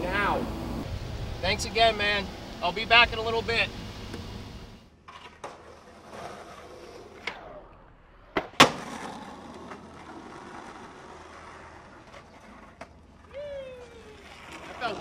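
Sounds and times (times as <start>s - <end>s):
skateboard wheels rolling on asphalt: 0.0s - 15.0s
skateboard landing clack: 7.0s - 11.0s
skateboard tail pop: 8.3s - 9.8s.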